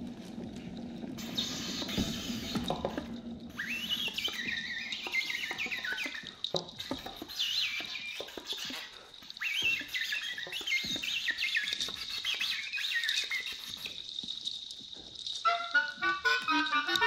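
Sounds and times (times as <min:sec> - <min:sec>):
oboe squeaks and chirps: 0:01.2 - 0:14.2, 0:15.4 - 0:17.0
low steady oboe tone: 0:15.4 - 0:17.0.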